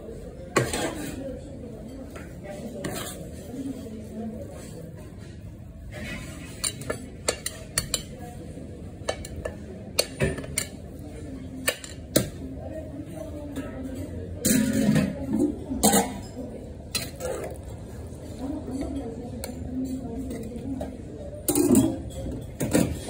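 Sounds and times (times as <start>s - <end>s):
metal spoon clinking on pan: 6.6s - 8.2s.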